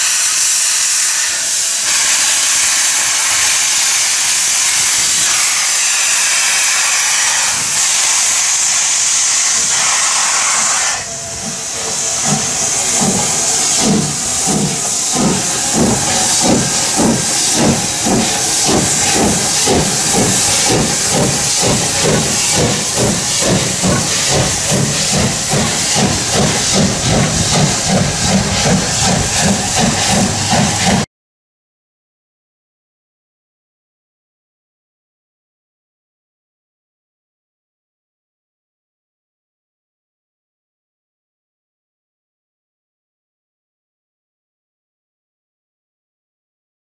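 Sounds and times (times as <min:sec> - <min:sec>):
steam hissing from locomotive: 0:00.0 - 0:31.1
locomotive exhaust chuffs: 0:11.3 - 0:31.1.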